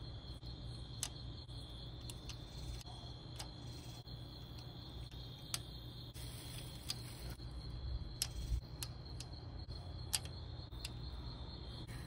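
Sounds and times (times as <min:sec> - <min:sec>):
crickets trilling: 0:00.0 - 0:12.0
sharp metal clicks: 0:02.0 - 0:05.8, 0:08.2 - 0:11.1.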